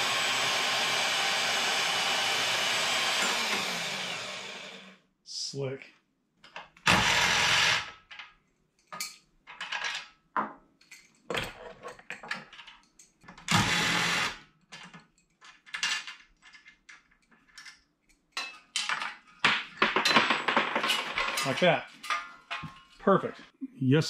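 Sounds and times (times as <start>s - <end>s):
power tool motor running: 0.0s - 5.0s, 6.9s - 7.9s, 13.5s - 14.4s
metal parts clattering: 8.1s - 10.2s, 10.8s - 13.4s, 14.7s - 23.4s.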